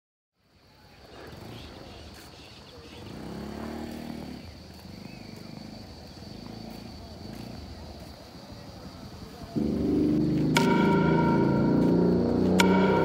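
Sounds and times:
high-pitched insect drone: 0:03.0 - 0:13.0.

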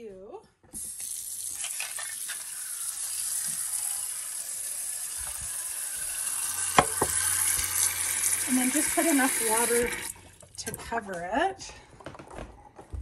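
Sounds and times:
tap water running into a pot: 0:00.8 - 0:10.8
sharp knock: 0:06.8 - 0:07.2.

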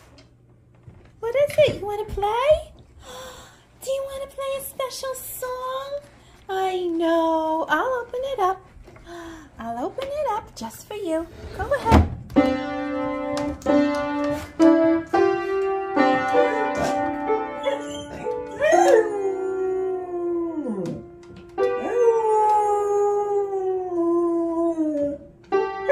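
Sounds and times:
piano notes struck: 0:12.2 - 0:19.1, 0:20.8 - 0:22.7, 0:25.4 - 0:25.9
dog howling: 0:17.6 - 0:21.2.

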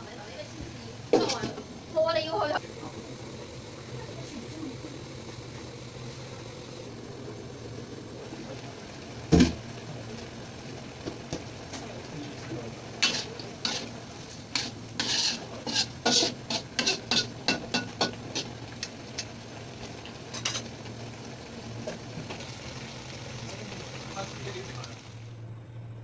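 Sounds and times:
steady low hum: 0:00.0 - 0:26.0
spatula scraping a wok: 0:13.0 - 0:18.6.

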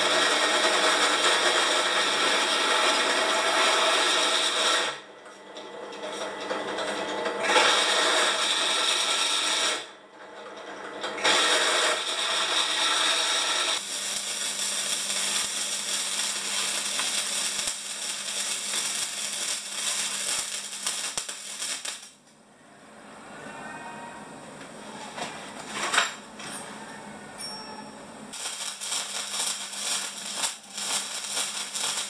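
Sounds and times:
arc welding crackling hiss: 0:00.0 - 0:05.0, 0:07.4 - 0:09.9, 0:11.2 - 0:22.2, 0:28.3 - 0:32.0
drill press boring into steel: 0:07.4 - 0:09.9, 0:11.2 - 0:21.2.

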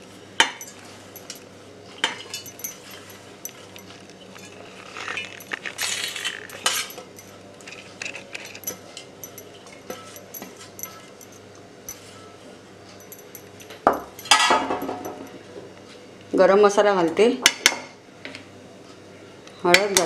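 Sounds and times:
spoon scraping and clinking on steel: 0:00.5 - 0:01.4, 0:02.0 - 0:12.1.

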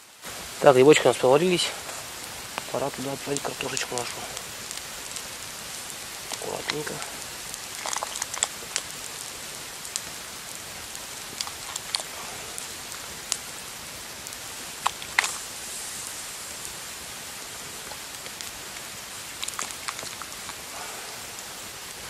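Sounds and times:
boiling water hiss: 0:00.0 - 0:22.0
campfire crackling: 0:00.0 - 0:22.0.

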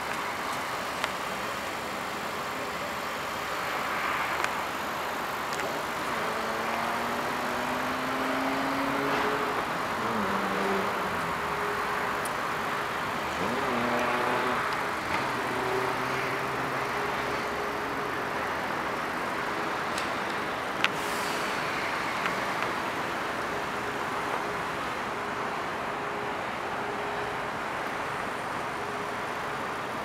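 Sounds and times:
road traffic noise: 0:00.0 - 0:30.0
vehicle engine rising and falling: 0:05.6 - 0:17.9.

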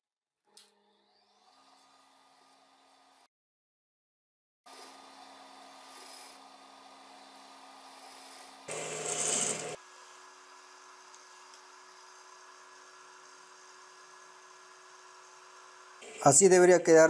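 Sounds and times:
sewing machine motor humming: 0:08.7 - 0:09.8
sewing machine stitching: 0:08.7 - 0:09.8.

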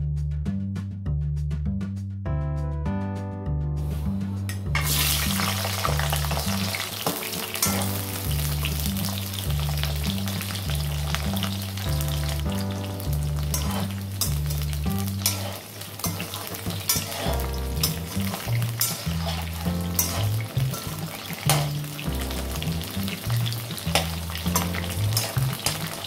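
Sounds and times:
background music with bass: 0:00.0 - 0:15.6, 0:16.3 - 0:26.0
food sizzling in hot oil: 0:04.8 - 0:26.0
spatula scraping metal pan: 0:06.3 - 0:08.9, 0:12.4 - 0:26.0.

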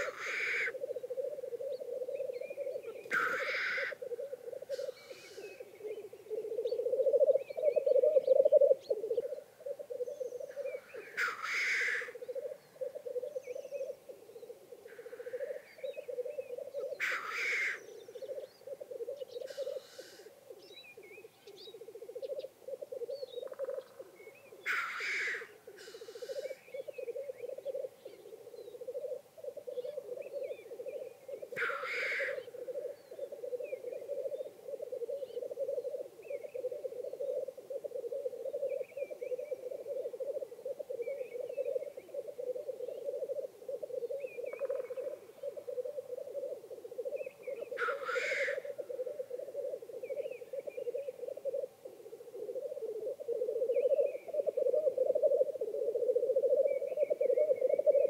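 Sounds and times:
grouse bubbling coo: 0:00.0 - 0:58.0
grouse hissing sneeze call: 0:03.1 - 0:04.0, 0:04.7 - 0:05.6, 0:19.4 - 0:20.3, 0:24.7 - 0:26.6, 0:47.8 - 0:48.7.

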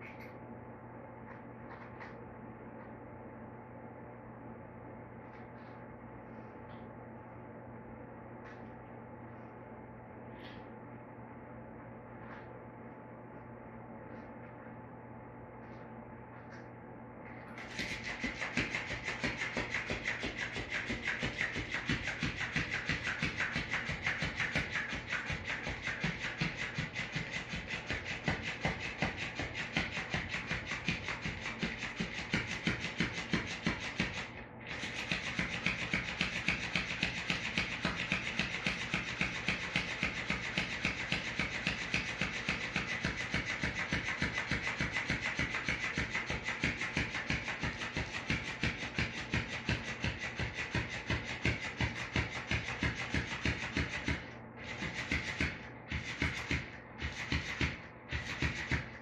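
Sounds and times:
toy tail slapping on tile: 0:17.5 - 0:59.0
toy motor whirring: 0:17.6 - 0:59.0.

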